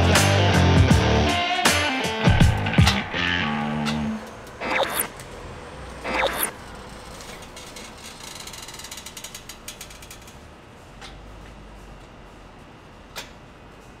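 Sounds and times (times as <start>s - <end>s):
rapid ratcheting clicks: 6.4s - 10.4s.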